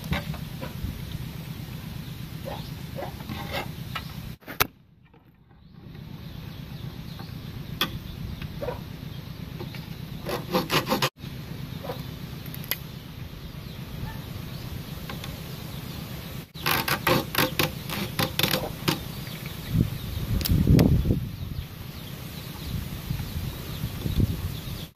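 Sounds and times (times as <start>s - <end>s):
steady low hum: 0.0s - 24.9s
hacksaw cutting bamboo: 10.2s - 11.2s, 16.6s - 19.0s.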